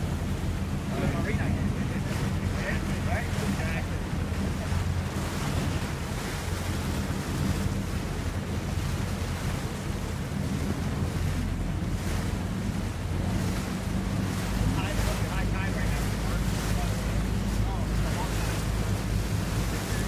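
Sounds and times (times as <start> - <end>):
boat engine droning: 0.0 - 20.0
water rushing past: 0.0 - 20.0
wind buffeting microphone: 0.0 - 20.0.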